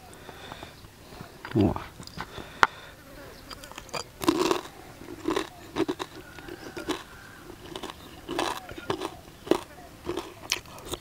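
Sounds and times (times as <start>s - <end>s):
person chewing crispy food: 3.4s - 11.0s.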